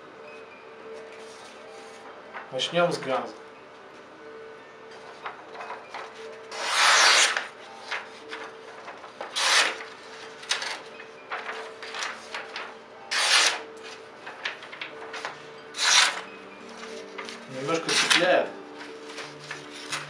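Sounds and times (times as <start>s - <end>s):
knife slicing paper: 6.5s - 7.5s, 9.3s - 9.8s, 13.1s - 13.7s, 15.8s - 16.3s, 17.8s - 18.3s.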